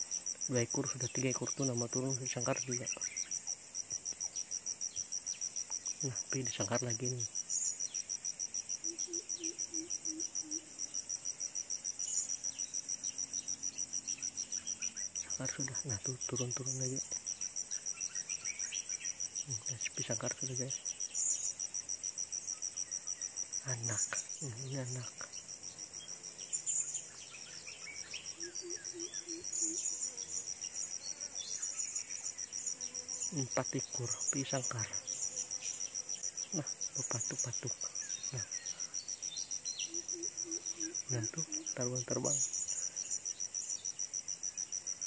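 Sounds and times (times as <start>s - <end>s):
insect chirring: 0.0s - 45.0s.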